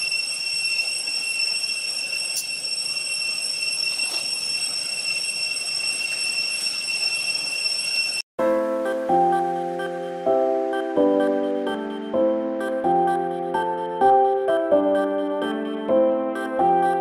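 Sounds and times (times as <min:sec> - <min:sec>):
cicadas droning: 0:00.0 - 0:08.2, 0:08.8 - 0:14.3.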